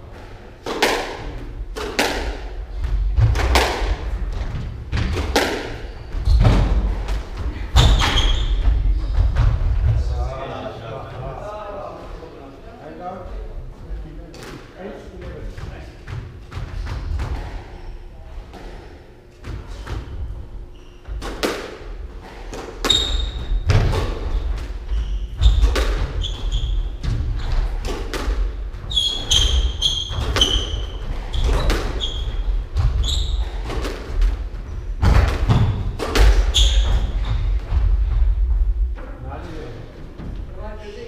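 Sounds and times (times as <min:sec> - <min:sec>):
squash ball cracking off rackets: 0:00.6 - 0:02.5, 0:04.9 - 0:05.8, 0:21.1 - 0:24.8, 0:25.4 - 0:26.2
shoes squeaking on court: 0:07.8 - 0:09.2, 0:19.6 - 0:21.5, 0:22.6 - 0:28.0, 0:28.8 - 0:34.0, 0:35.5 - 0:37.6
footsteps on wooden floor: 0:34.2 - 0:39.2.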